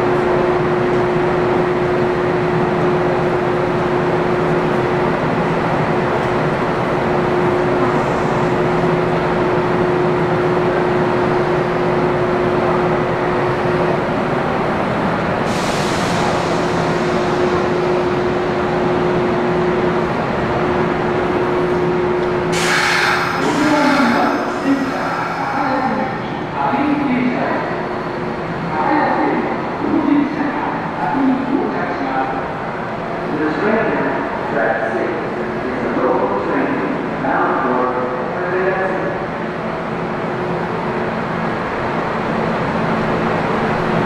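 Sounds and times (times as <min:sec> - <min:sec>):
train mechanical noise: 0:00.0 - 0:44.0
short hiss: 0:22.6 - 0:23.5.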